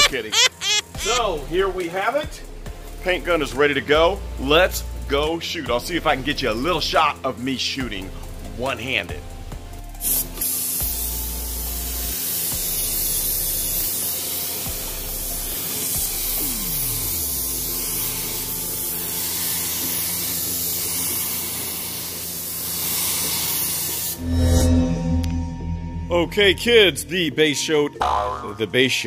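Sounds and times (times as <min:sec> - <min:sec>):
spray gun air hiss: 0:10.0 - 0:24.2.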